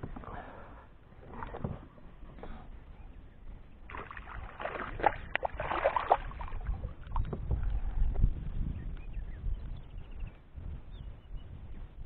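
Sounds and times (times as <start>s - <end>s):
sharp water slaps: 3.9s - 6.6s
fish splashing in water: 3.9s - 6.7s.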